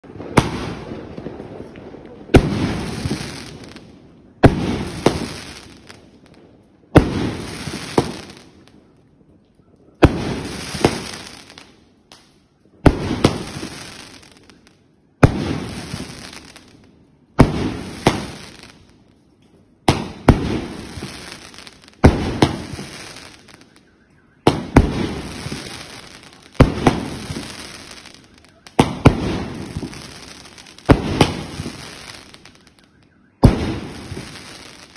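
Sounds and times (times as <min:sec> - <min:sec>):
firework bangs: 0:00.0 - 0:08.9, 0:10.0 - 0:11.8, 0:12.8 - 0:19.0, 0:19.8 - 0:34.9
firework crackle and hiss: 0:00.0 - 0:09.0, 0:09.6 - 0:34.9.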